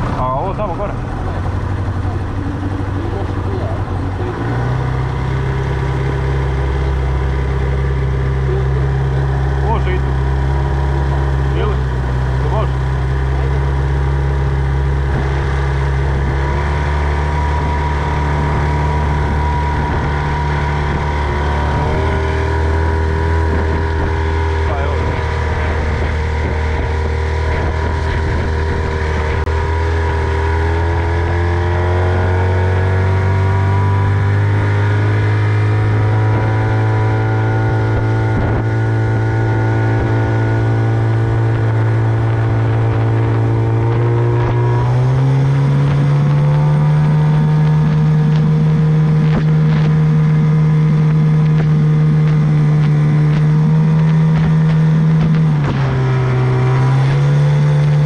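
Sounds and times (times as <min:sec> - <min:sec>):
outboard motor running: 0:00.0 - 0:58.0.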